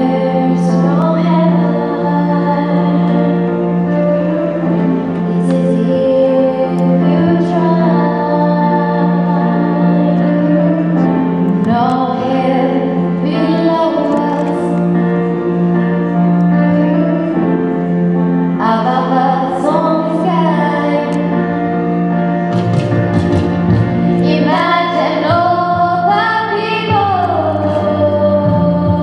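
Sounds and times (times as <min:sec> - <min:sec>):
girls' chorus singing: 0:00.0 - 0:15.0, 0:24.2 - 0:29.0
held chord accompaniment: 0:00.0 - 0:29.0.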